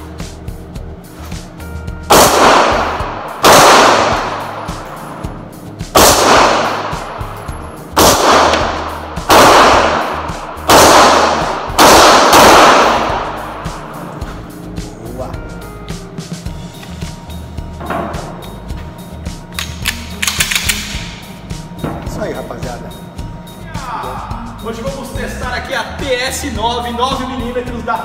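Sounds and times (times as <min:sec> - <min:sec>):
faint background music: 0:00.0 - 0:28.0
pistol shots ringing indoors: 0:02.1 - 0:14.1, 0:19.6 - 0:21.2.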